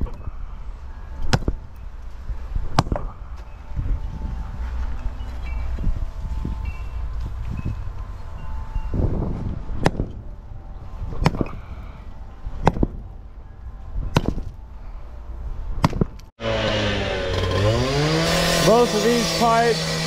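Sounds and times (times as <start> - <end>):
tool striking concrete and gravel: 2.6 - 3.5, 14.1 - 14.5, 15.8 - 20.0
cut-off saw engine running: 16.4 - 20.0.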